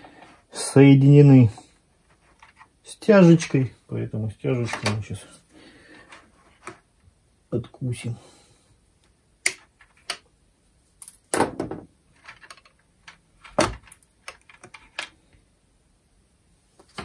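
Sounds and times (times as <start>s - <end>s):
plastic parts knocking: 11.3s - 15.2s.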